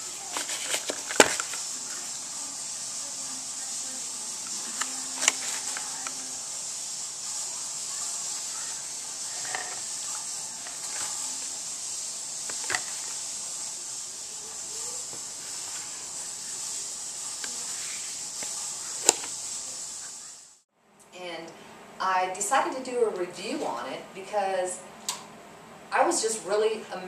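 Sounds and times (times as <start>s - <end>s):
steady hiss: 0.0s - 20.7s.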